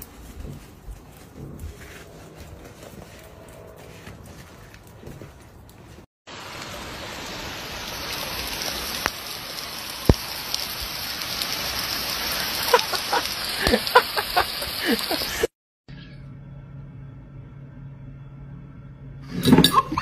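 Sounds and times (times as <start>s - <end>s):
rain hissing: 5.8s - 15.5s.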